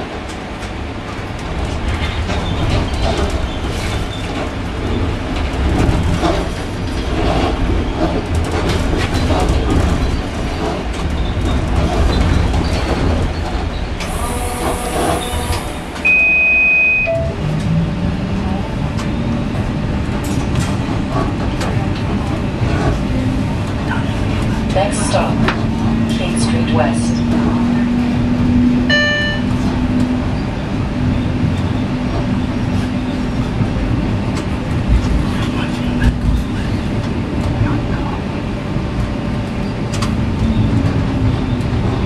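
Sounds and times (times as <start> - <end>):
streetcar rumble on rails: 0.0 - 42.0
steady high beep: 16.0 - 17.4, 28.9 - 29.5.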